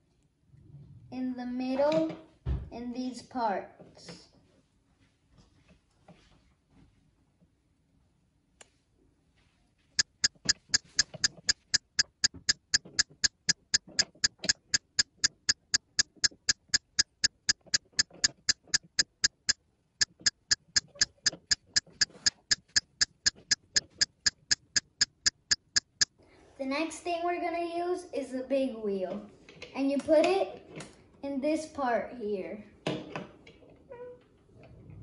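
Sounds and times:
clock-like ticking: 10.0 - 26.1.

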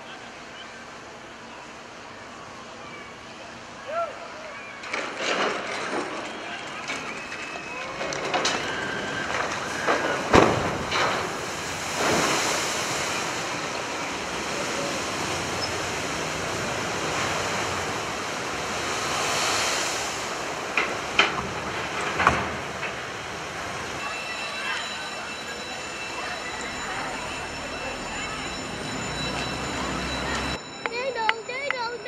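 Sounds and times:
water rushing and splashing: 6.9 - 30.6.

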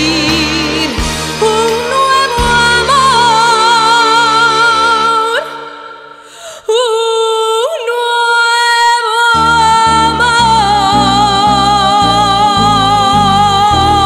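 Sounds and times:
band backing chords: 0.0 - 5.7
woman singing with vibrato: 0.0 - 14.0.

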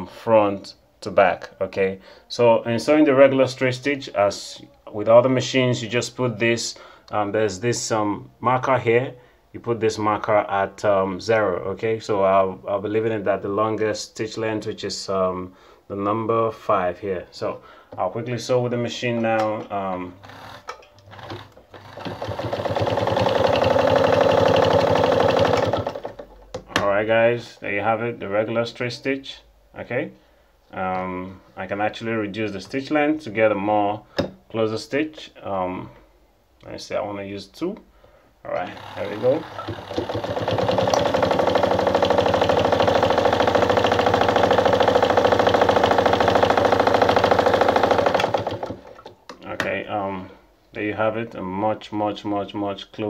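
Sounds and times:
sewing machine stitching: 20.0 - 26.6, 38.6 - 49.1.

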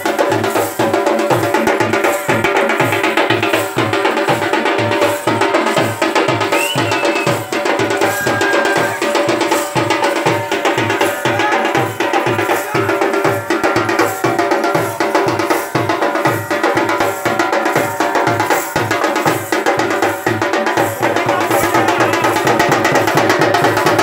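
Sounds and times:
deep drum beating: 0.0 - 24.0
sharp higher drum strokes: 0.0 - 24.0.

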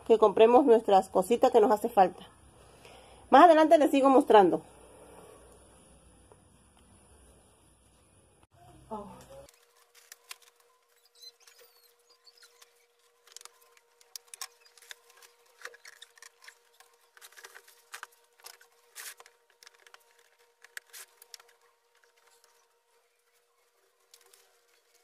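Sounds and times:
thin steady hum: 0.0 - 25.0.

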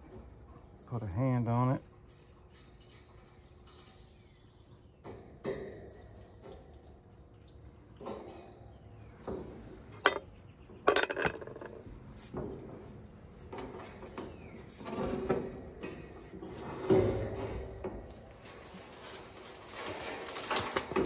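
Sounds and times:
metal fan grille rattling: 0.0 - 4.6, 9.2 - 21.0.

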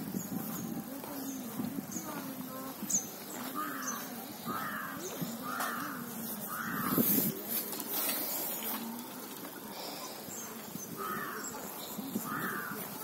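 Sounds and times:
small birds chirping: 0.0 - 13.0
crow cawing: 3.5 - 7.2, 11.0 - 13.0.

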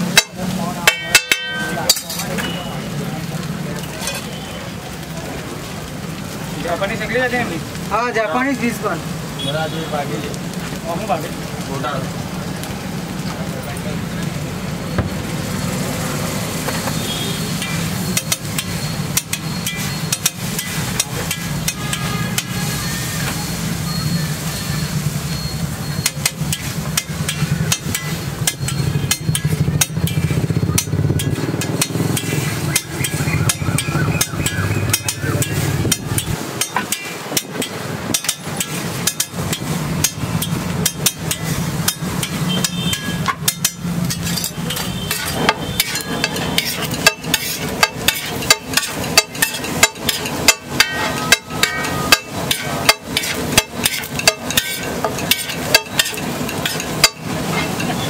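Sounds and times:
metal spatula scraping on griddle: 0.1 - 4.5, 16.4 - 58.0.

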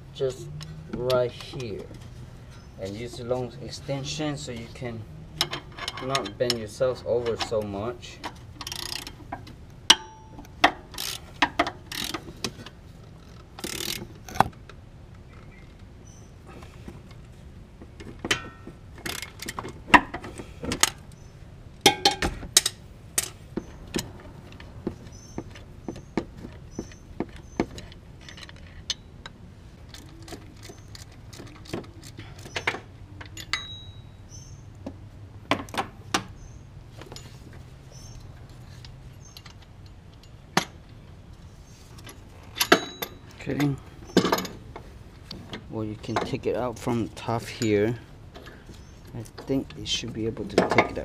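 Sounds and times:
metal tools clinking: 5.4 - 14.1, 29.8 - 34.5, 37.0 - 40.7, 41.8 - 44.7, 46.0 - 51.0
hand ratchet clicking: 8.6 - 9.2, 11.9 - 12.2, 13.6 - 14.4.

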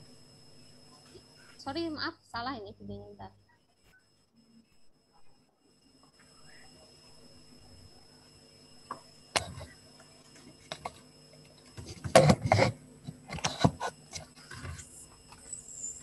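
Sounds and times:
faint electrical whine: 0.0 - 16.0.

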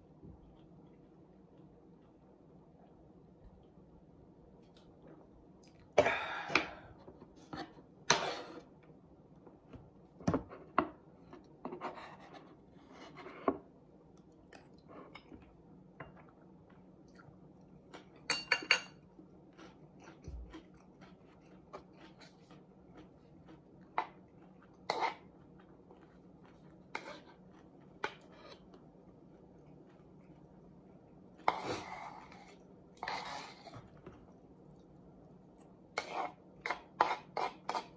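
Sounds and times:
spoon scraping a wooden bowl: 11.6 - 13.6, 31.5 - 33.9, 36.0 - 37.9
chewing: 19.4 - 34.9.

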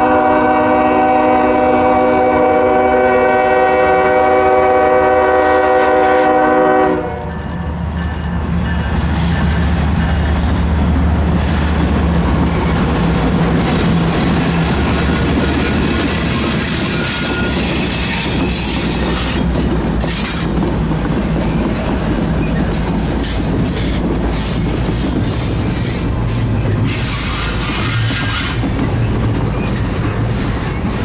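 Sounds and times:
diesel locomotive engines: 0.0 - 31.0
train wheels on rails: 0.0 - 31.0
high wheel squeal: 13.6 - 20.6, 25.3 - 31.0.

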